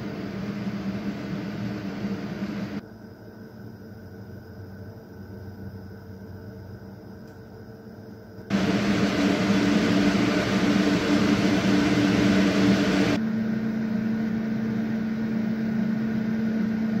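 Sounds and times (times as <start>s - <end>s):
computer fans rushing air: 0.0s - 2.8s, 8.5s - 13.2s
case fan whirring: 8.5s - 13.2s.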